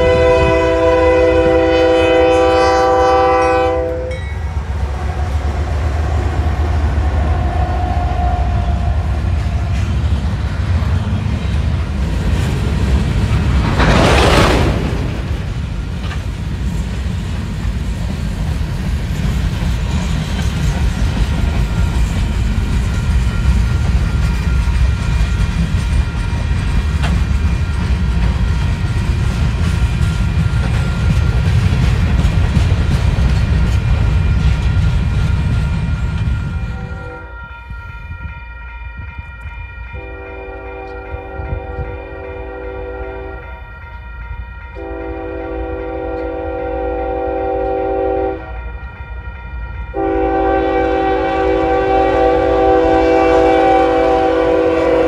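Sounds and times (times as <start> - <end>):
locomotive air horn: 0.0 - 5.7, 36.6 - 37.4, 39.9 - 43.6, 44.7 - 48.9, 49.9 - 55.0
freight cars rumbling and clattering: 8.5 - 36.7.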